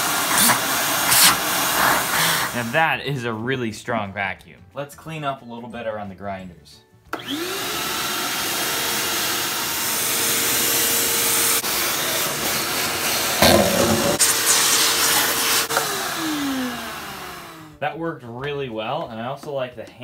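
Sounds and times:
shop vacuum motor whining: 0.0s - 2.6s, 7.1s - 17.8s.

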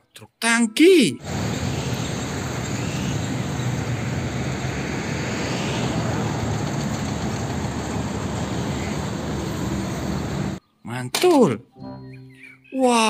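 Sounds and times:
road traffic noise: 1.2s - 10.6s
truck diesel engine passing: 1.2s - 10.6s.

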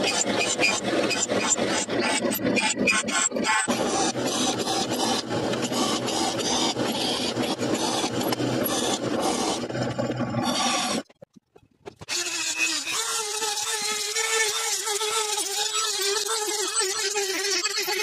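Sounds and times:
drill press cutting steel: 0.0s - 11.0s
motor starting: 0.0s - 11.1s.

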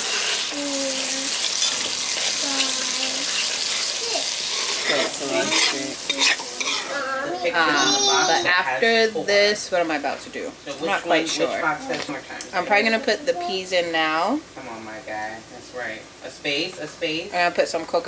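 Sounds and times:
paste sizzling in hot oil: 0.0s - 8.3s
metal spoon stirring: 1.3s - 6.9s.

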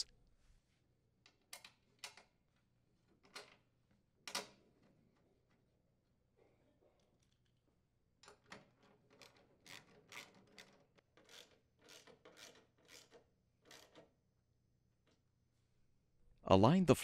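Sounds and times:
nut driver scraping twists: 8.5s - 14.1s.

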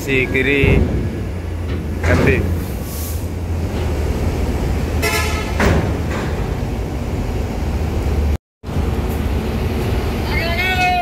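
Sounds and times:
vehicle horn toot: 5.0s - 5.6s.

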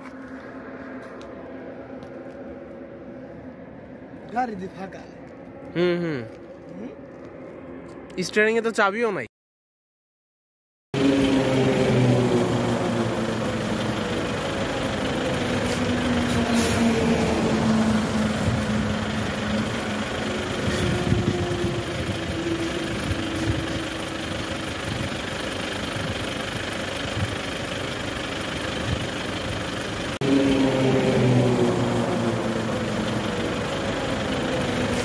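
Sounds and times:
vehicle engine and road noise: 0.0s - 9.2s, 11.0s - 35.0s.

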